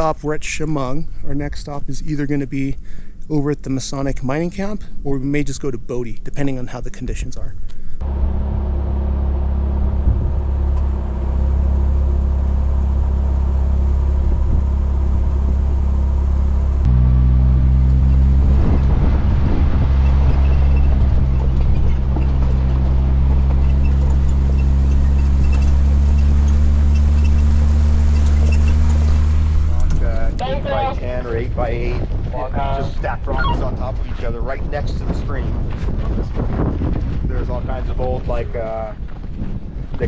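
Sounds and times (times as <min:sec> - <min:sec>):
vehicle engine droning: 0:07.9 - 0:35.1.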